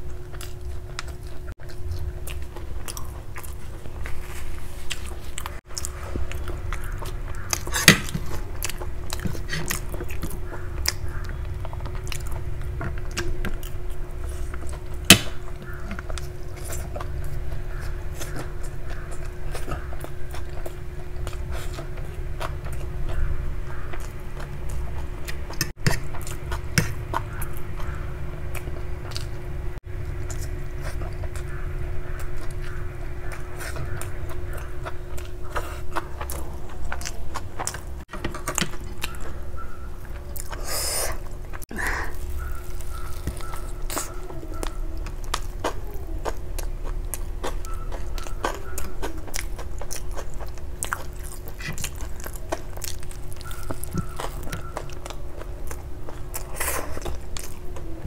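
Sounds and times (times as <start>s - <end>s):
chewing and biting: 0.0s - 58.0s
steady low hum: 0.0s - 58.0s
crunchy bite: 41.8s - 57.6s.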